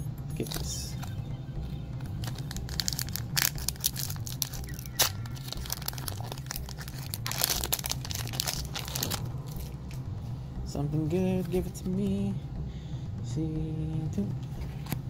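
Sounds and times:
foil wrapper tearing and crinkling: 2.2 - 9.7.

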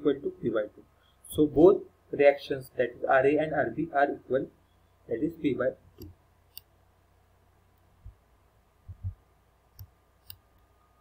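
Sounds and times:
soft low thumps: 8.8 - 9.3
computer mouse clicks: 9.7 - 10.7.

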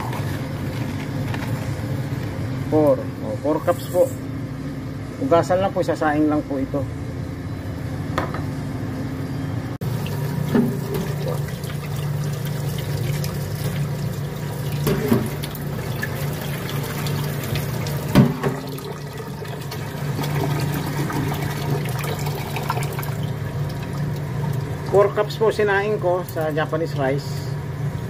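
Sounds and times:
tap water running into pot: 9.8 - 25.5.

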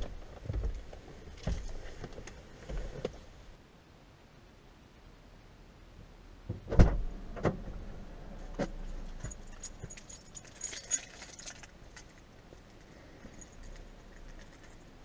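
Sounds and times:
knocks against a car: 6.5 - 7.6
small metal items jingling: 9.0 - 15.0.

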